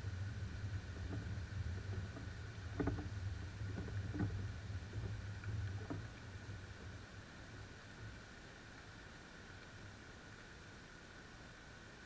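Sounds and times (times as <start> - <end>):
wind rumbling on microphone: 0.0 - 8.1.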